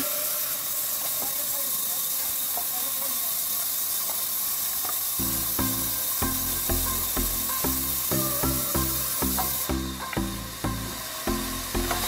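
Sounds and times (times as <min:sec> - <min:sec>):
band saw cutting wood: 0:00.0 - 0:12.0
low pulsing drone: 0:05.2 - 0:12.0.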